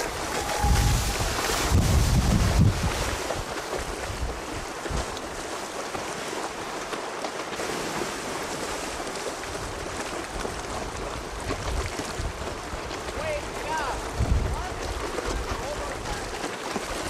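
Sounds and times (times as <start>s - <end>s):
wind buffets on microphone: 0.0s - 5.4s, 9.4s - 17.0s
sea wash over choppy water: 0.0s - 17.0s.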